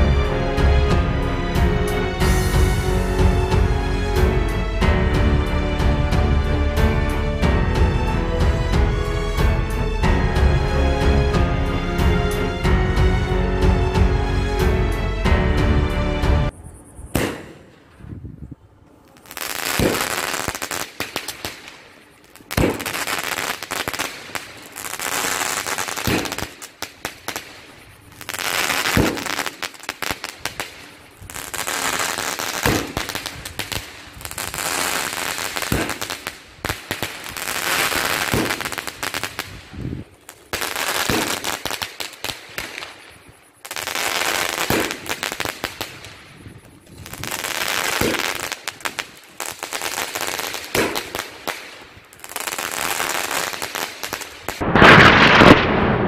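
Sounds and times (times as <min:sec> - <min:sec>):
firework launch pops: 0:17.1 - 0:17.8, 0:19.7 - 0:20.2, 0:22.4 - 0:23.0, 0:26.0 - 0:26.7, 0:28.8 - 0:30.9, 0:32.6 - 0:33.9, 0:35.6 - 0:36.2, 0:38.2 - 0:38.8, 0:41.0 - 0:41.5, 0:44.6 - 0:46.0, 0:48.0 - 0:48.3, 0:50.7 - 0:51.7, 0:54.5 - 0:56.0
firework spark trail hissing: 0:19.0 - 0:56.0.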